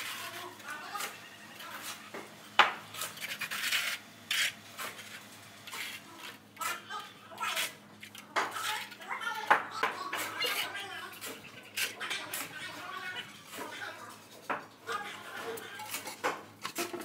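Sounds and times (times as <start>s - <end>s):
trowel scraping mortar: 3.0s - 9.0s, 10.1s - 13.8s.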